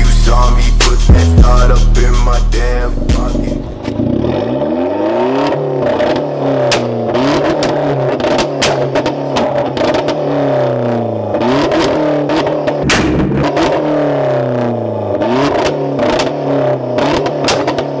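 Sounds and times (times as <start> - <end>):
car engine revving: 0.0 - 18.0
exhaust pops and cracks: 6.0 - 10.3, 11.7 - 13.9, 15.5 - 16.4, 17.0 - 18.0.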